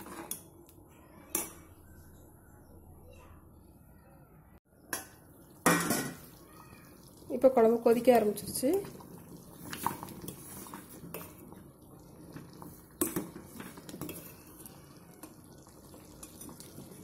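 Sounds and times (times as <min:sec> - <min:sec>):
gravy bubbling: 0:05.2 - 0:17.0
ladle scraping metal pot: 0:12.3 - 0:14.7.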